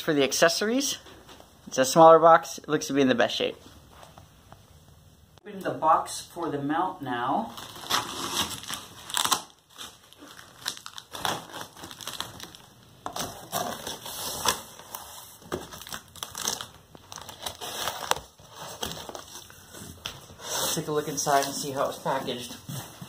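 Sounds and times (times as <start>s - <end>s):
packing tape pulled off: 7.6s - 12.7s.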